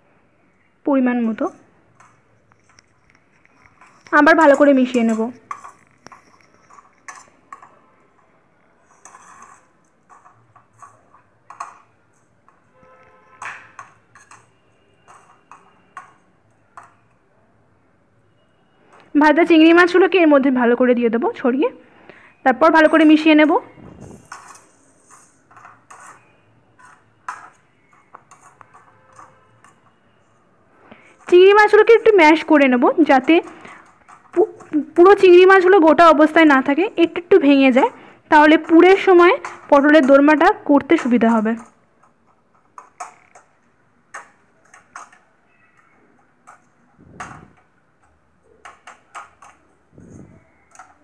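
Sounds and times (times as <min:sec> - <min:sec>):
metal spatula tapping and scraping: 0:01.2 - 0:17.1, 0:24.2 - 0:30.1, 0:30.9 - 0:35.7, 0:37.1 - 0:49.8
metal spatula scraping pan: 0:08.8 - 0:11.8, 0:24.1 - 0:29.8.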